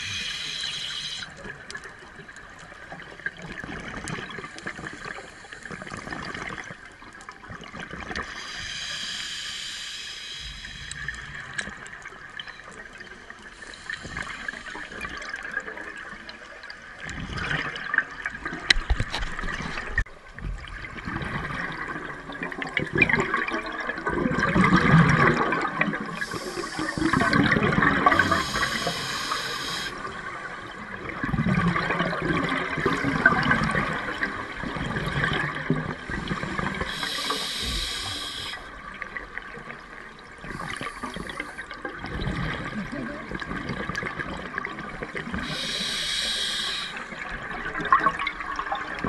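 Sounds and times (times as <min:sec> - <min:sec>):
regulator hissing inhale: 0:00.0 - 0:01.4, 0:04.5 - 0:05.9, 0:08.2 - 0:11.3, 0:13.5 - 0:15.2, 0:26.2 - 0:27.4, 0:28.1 - 0:30.1, 0:36.2 - 0:38.8, 0:40.5 - 0:41.8, 0:45.4 - 0:47.2.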